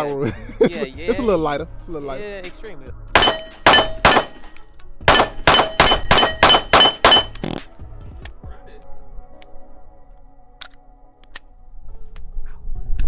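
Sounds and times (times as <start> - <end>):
pistol shots with ringing tail: 3.2 - 7.4.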